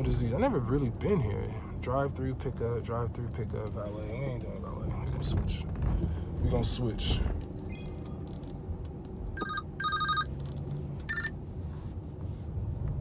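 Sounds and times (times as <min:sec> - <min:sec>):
short electronic beeps: 0:09.4 - 0:10.3, 0:11.1 - 0:11.3.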